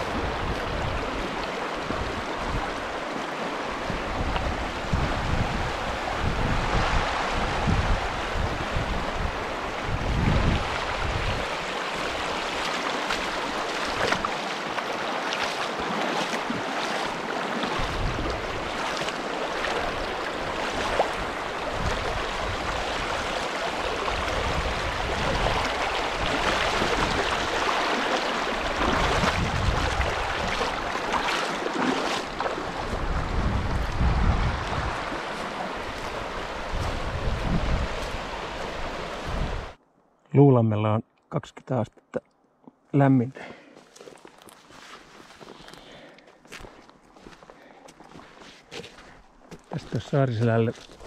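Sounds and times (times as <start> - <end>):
wind gusting against microphone: 0.0 - 14.2, 16.5 - 31.2, 32.2 - 39.8.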